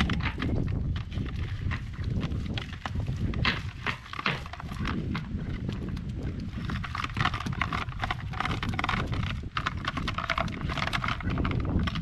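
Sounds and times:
cast net knocking and clicking: 0.0 - 5.3, 6.7 - 12.0
fish flopping on boards: 0.0 - 5.4.

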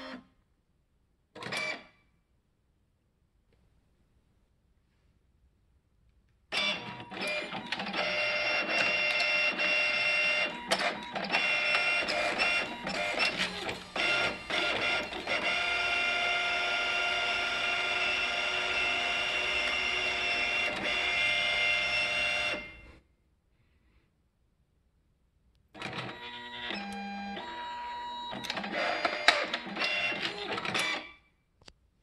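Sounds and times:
printer clicks and clunks: 6.5 - 22.7, 25.8 - 31.1
printer motors whining: 6.5 - 22.9, 25.8 - 31.1.

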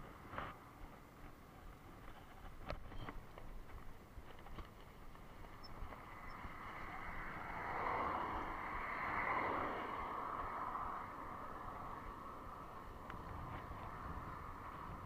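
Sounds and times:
van passing by: 5.2 - 15.0.

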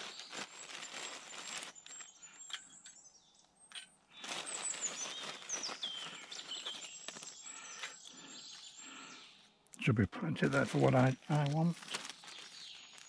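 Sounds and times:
plastic bag rustling: 0.0 - 2.2, 4.1 - 7.9, 10.4 - 13.0
songbird singing: 0.1 - 13.0.

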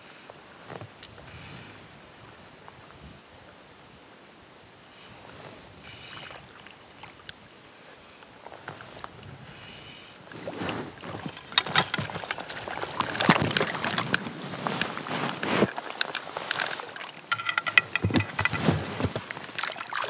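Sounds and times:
fish splashing in shallow water: 10.2 - 20.0
sharp knocks: 17.3 - 18.8.

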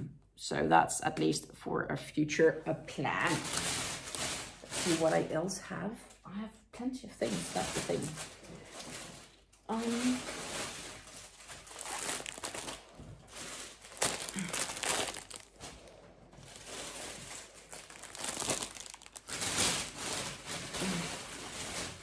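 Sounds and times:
packaging crinkling: 3.3 - 5.1, 7.8 - 22.0.

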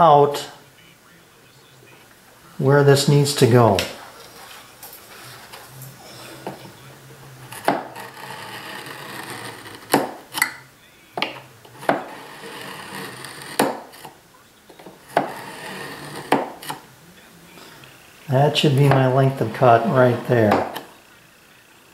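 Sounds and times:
chisel scraping plywood: 7.5 - 10.4, 11.7 - 14.1, 14.8 - 16.8, 18.8 - 20.9.

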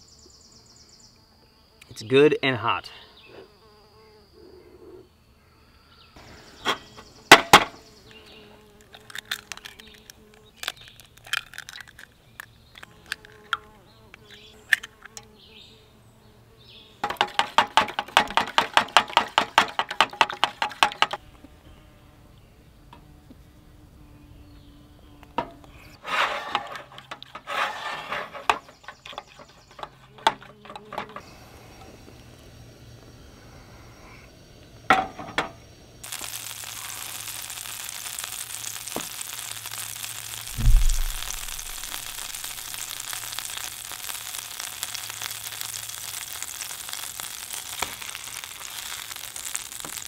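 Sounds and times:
sharp knocks: 40.5 - 42.4.

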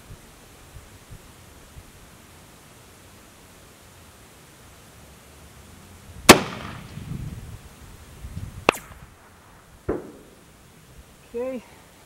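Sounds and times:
rifle shot with rolling echo: 6.3 - 7.0, 8.6 - 10.5.

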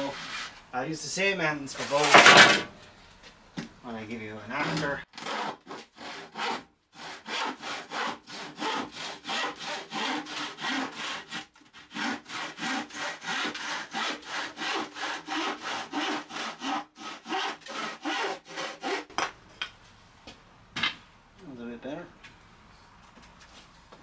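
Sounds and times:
hand saw cutting wood: 4.5 - 19.3.

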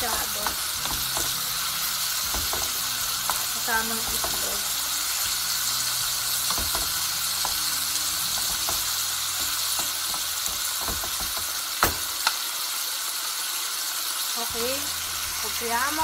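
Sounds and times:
food sizzling in a frying pan: 0.0 - 16.0
sharp knocks: 6.5 - 7.0.

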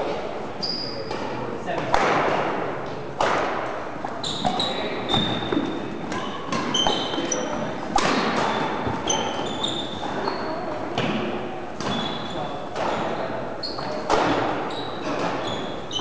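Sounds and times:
racket hitting shuttlecock: 1.1 - 2.6, 3.2 - 10.2, 11.0 - 13.2, 13.9 - 15.8
shoes squeaking on wooden floor: 4.1 - 10.7, 11.9 - 16.0.

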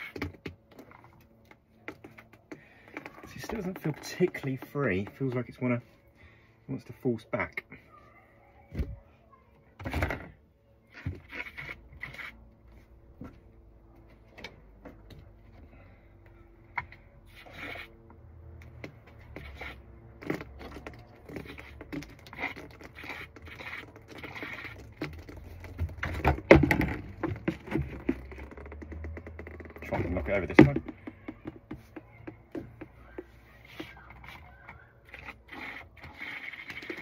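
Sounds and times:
pipe cleaner scraping in drain tube: 10.9 - 12.5, 17.2 - 31.0, 32.7 - 37.0.

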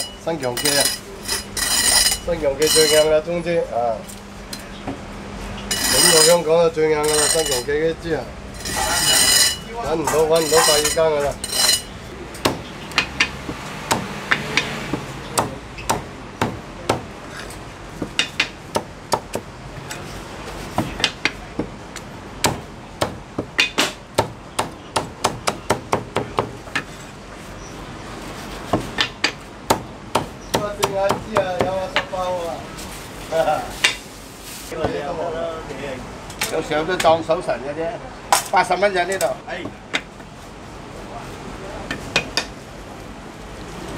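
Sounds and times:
cleaver chopping on wooden block: 12.4 - 17.1, 22.4 - 26.9, 28.7 - 32.1.

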